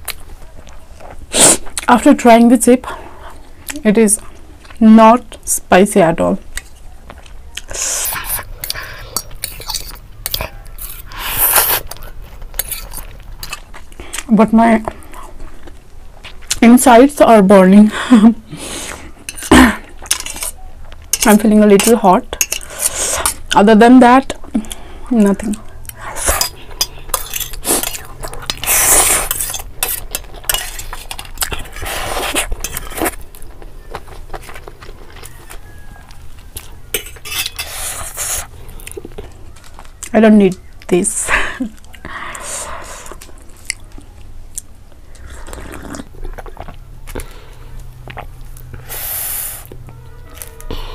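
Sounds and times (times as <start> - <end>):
close-up eating sounds: 0.0 - 50.9
noodles slurped and chewed: 6.6 - 17.0, 22.5 - 40.1, 41.8 - 50.9
metal fork scraping dish: 8.3 - 11.8, 12.6 - 13.6, 26.2 - 31.6, 36.9 - 38.2.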